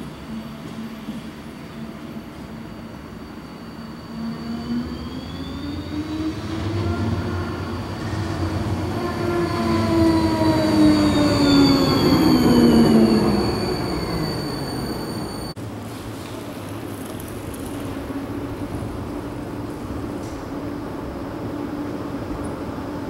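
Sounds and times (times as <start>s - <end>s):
tram electric drive whine: 0.0s - 23.0s
wheels rumbling on rails: 5.0s - 23.0s.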